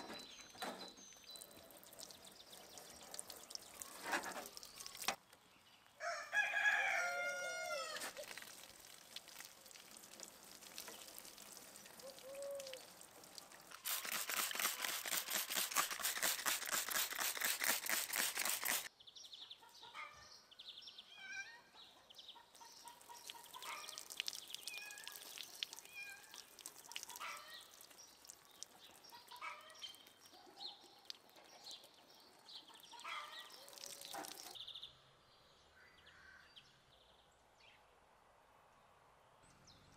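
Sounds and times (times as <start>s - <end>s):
small birds chirping: 0.0s - 6.0s, 8.2s - 37.1s
rooster crowing: 6.0s - 8.1s.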